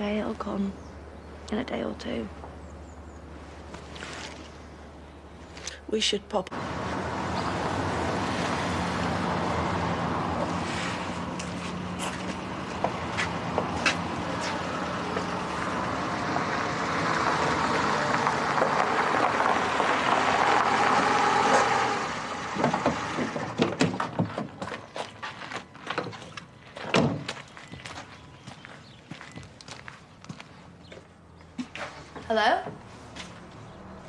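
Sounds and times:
car driving up and stopping: 6.5s - 24.7s
footsteps and knocks: 11.2s - 15.4s, 22.6s - 33.6s.

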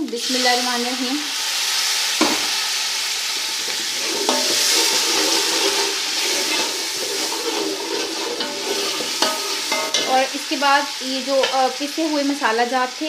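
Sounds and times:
onion paste sizzling in hot oil: 0.0s - 13.0s
stirring in cooking pot: 3.0s - 10.3s.

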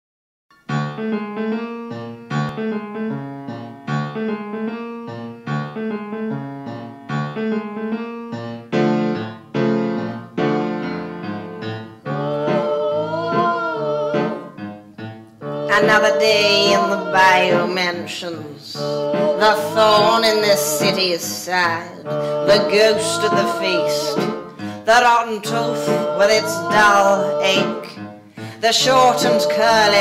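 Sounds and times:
piano chords: 0.5s - 30.0s
wavering singing voice: 12.0s - 14.6s, 15.4s - 30.0s.

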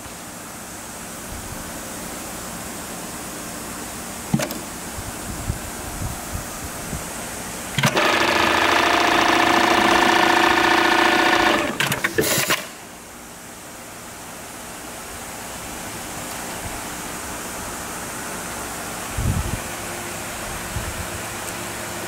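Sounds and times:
sewing machine clacks: 7.8s - 12.7s
sewing machine running: 7.8s - 12.7s.

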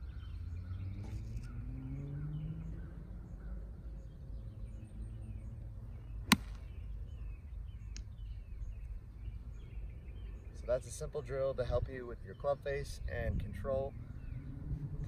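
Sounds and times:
birds chirping: 0.0s - 15.0s
low outdoor rumble: 0.0s - 15.0s
golf club striking ball: 6.3s - 6.8s.

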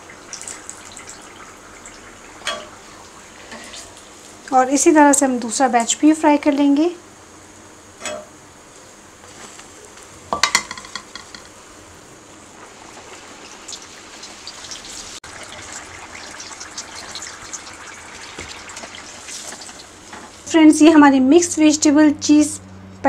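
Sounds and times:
deep-frying sizzle: 0.0s - 20.8s
metal clatter against pan: 10.4s - 11.6s.

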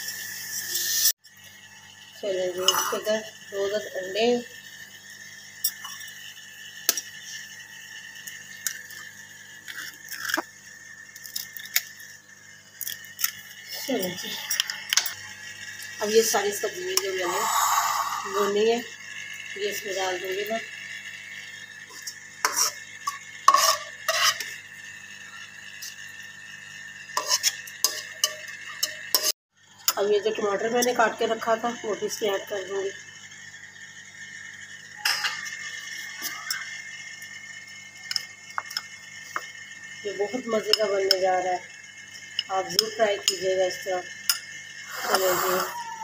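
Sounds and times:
metal spoon scraping frying pan: 21.9s - 24.6s, 27.2s - 29.3s.

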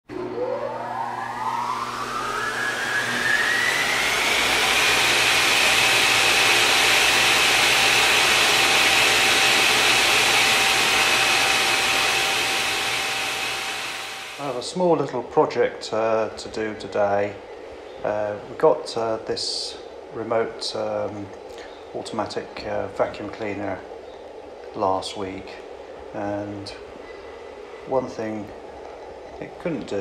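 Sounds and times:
high-speed motor whine: 0.1s - 14.6s.

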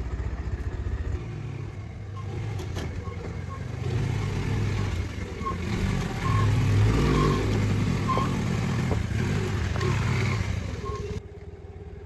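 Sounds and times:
motorbike engine running: 0.0s - 3.9s
road and wind noise: 0.0s - 12.0s.

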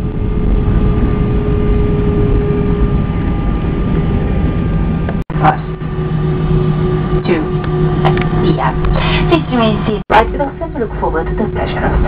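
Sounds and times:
aircraft engines and rolling rumble: 0.0s - 12.0s.

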